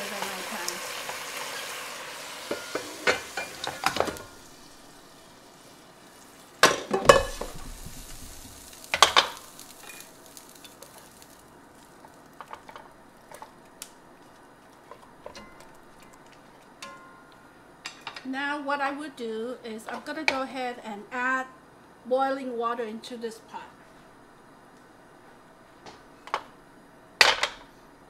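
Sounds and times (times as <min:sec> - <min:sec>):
fish sizzling in a pot: 0:00.0 - 0:16.5
pot clinking: 0:06.6 - 0:07.6, 0:15.2 - 0:18.2
pot clattering knocks: 0:06.6 - 0:07.7.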